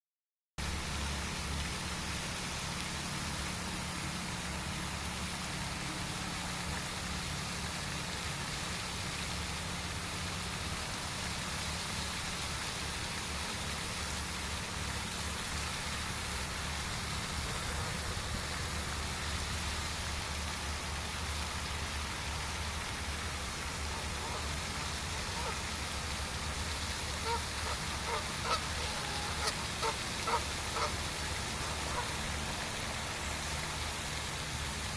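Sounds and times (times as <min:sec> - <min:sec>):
fountain splashing: 0:00.6 - 0:34.9.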